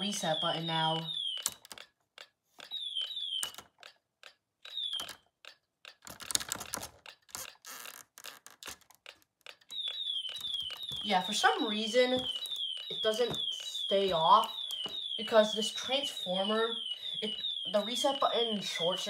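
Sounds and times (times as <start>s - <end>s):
person talking: 0.0s - 1.1s, 11.0s - 14.6s, 15.2s - 19.0s
alarm high falling chirp: 0.0s - 1.6s, 2.6s - 3.8s, 4.6s - 5.2s, 9.7s - 19.0s
sharp switch clicks: 1.3s - 7.6s.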